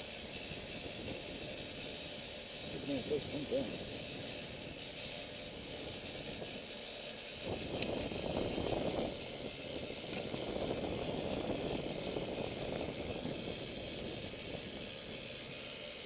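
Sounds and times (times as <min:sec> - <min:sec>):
wind buffeting microphone: 0:07.4 - 0:15.2.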